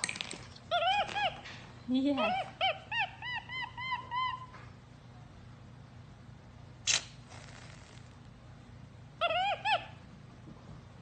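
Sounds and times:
monkey chirping: 0:00.7 - 0:01.4, 0:02.2 - 0:04.5.

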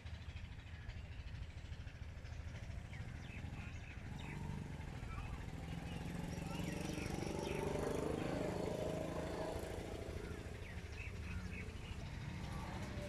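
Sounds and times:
engine running with low throb: 0:00.0 - 0:13.0
higher engine note: 0:02.7 - 0:13.0
bird chirps: 0:02.9 - 0:13.0.

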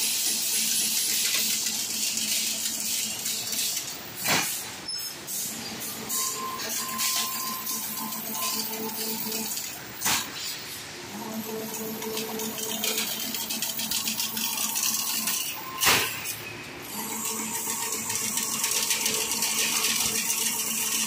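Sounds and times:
fast machine rattle: 0:00.0 - 0:04.0, 0:11.5 - 0:16.3, 0:16.9 - 0:21.0
machine motor hum: 0:05.8 - 0:09.9, 0:11.0 - 0:15.7, 0:16.8 - 0:21.0.

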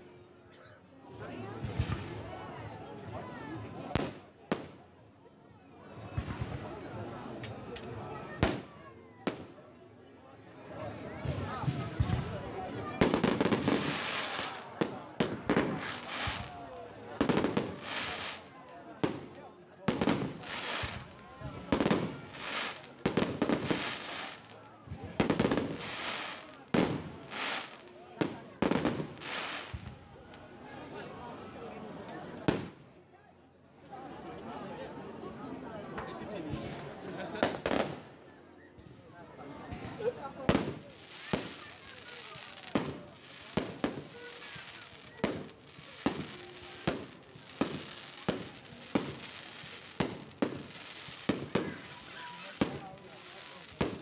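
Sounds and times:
fireworks crackling: 0:11.3 - 0:30.0, 0:40.4 - 0:54.0.

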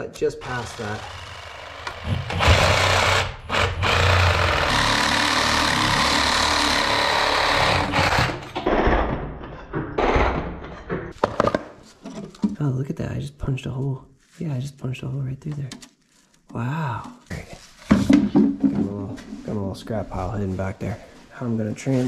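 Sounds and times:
multi-tool buzzing through pipe: 0:00.4 - 0:08.6.

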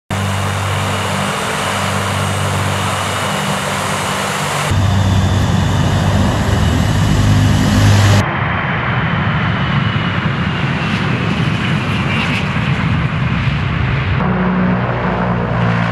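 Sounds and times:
propeller aircraft engines droning: 0:00.1 - 0:15.9.

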